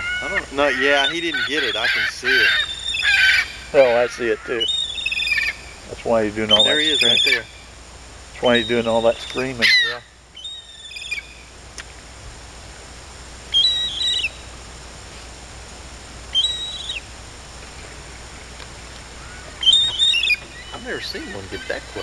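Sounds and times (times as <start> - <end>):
gull screaming: 0.0 - 5.7, 6.5 - 7.5, 8.4 - 11.2, 13.5 - 14.4, 16.3 - 17.0, 19.2 - 22.0.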